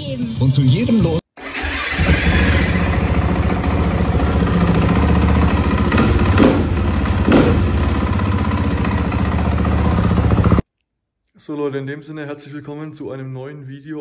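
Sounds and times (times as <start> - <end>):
motorcycle engine revving: 1.4 - 10.6
motorcycle engine idling: 2.0 - 10.6.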